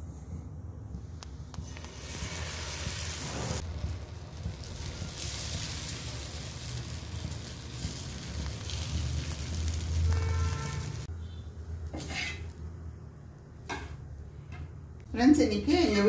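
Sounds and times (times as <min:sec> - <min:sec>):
batter sizzling on a hot pan: 0:01.6 - 0:11.1.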